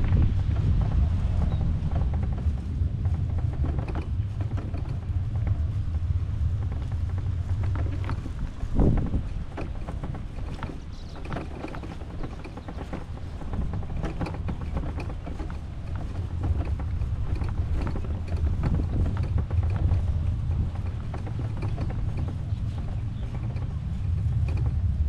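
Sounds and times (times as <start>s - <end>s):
light clicking and rattling: 0.0s - 25.0s
wind buffeting the microphone: 0.0s - 25.0s.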